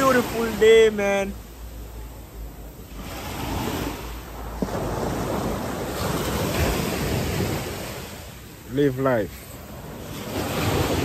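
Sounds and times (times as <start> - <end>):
sea surf washing onto beach: 0.0 - 11.0
wind buffeting microphone: 9.6 - 11.0.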